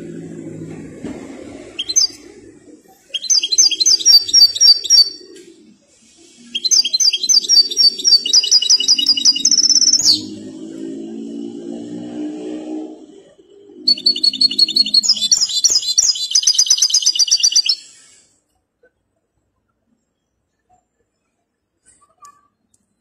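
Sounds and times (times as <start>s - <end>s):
goldfinch singing: 1.8s - 2.3s, 3.1s - 5.4s, 6.5s - 10.4s, 13.9s - 17.9s.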